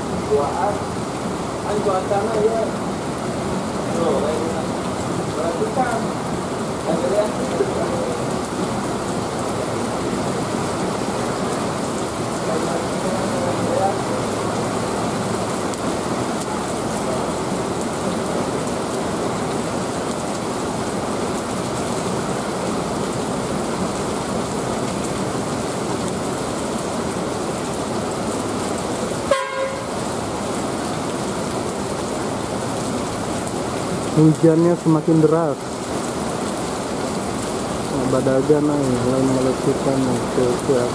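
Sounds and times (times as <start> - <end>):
heavy rain pouring: 0.0 - 40.9
bus horn toot: 29.3 - 30.0.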